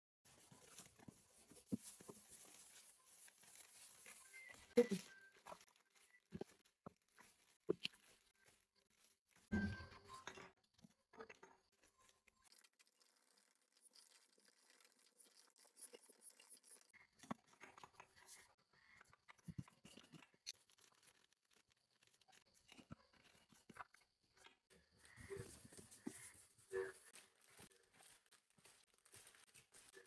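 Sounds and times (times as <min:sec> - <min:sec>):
plastic sachets crinkling and tearing: 0:01.8 - 0:09.4, 0:20.0 - 0:22.8.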